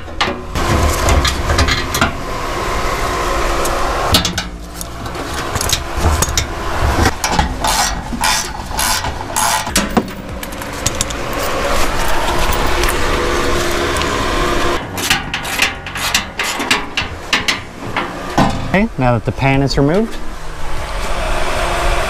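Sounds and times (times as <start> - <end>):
metal clanks and knocks: 0.0 - 2.2, 4.1 - 13.1, 14.8 - 18.9
hand tools clattering: 14.8 - 18.8.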